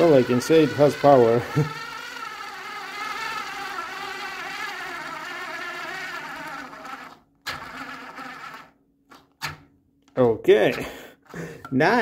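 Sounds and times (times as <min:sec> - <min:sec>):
electric screwdriver motor whine: 0:00.0 - 0:08.8.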